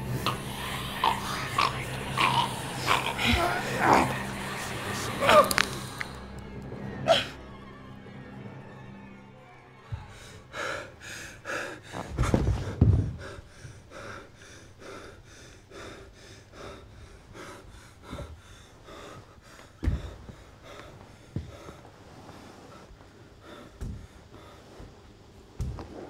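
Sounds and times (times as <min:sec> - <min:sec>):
man panting hard: 0:10.0 - 0:25.1
heavy low thuds: 0:12.1 - 0:13.8.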